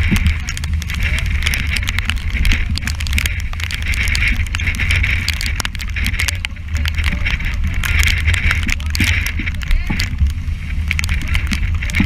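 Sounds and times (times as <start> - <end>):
rushing waves and spray: 0.0 - 12.0
wind buffeting microphone: 0.0 - 12.0.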